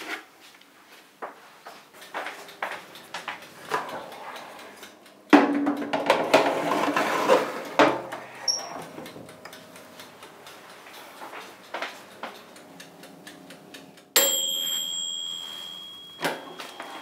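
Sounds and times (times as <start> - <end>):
metal tray scraping oven rack: 6.0 - 9.2.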